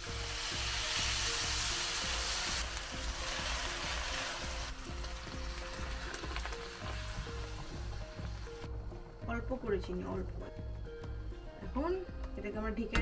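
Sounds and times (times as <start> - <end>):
milk sizzling in hot wok: 0.0 - 9.2
background music: 0.0 - 13.0.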